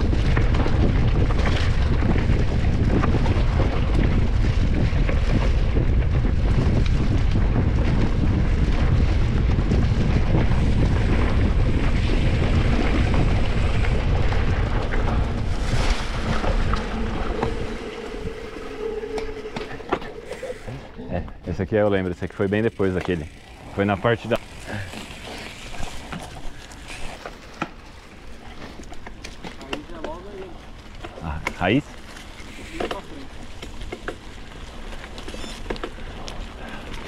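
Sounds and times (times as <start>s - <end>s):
wind buffeting microphone: 0.0s - 26.8s.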